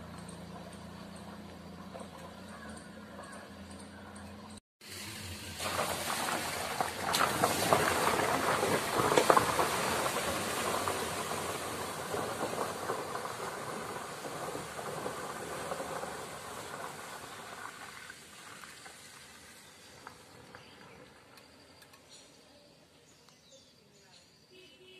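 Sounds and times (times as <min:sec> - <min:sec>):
vehicle splashing through flood water: 0:04.8 - 0:21.4.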